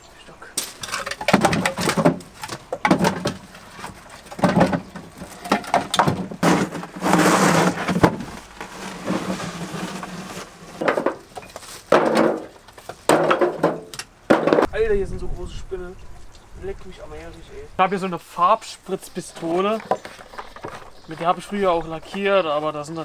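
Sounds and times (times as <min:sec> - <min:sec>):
firewood clattering into wheelbarrow: 0:00.6 - 0:14.7.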